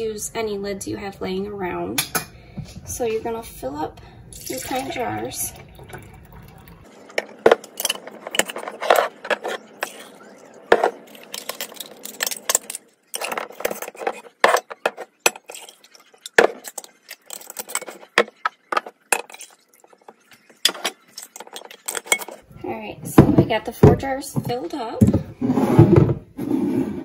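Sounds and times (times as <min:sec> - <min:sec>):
glass jars and lids clinking: 0:04.4 - 0:10.1, 0:10.7 - 0:19.6, 0:20.5 - 0:22.4.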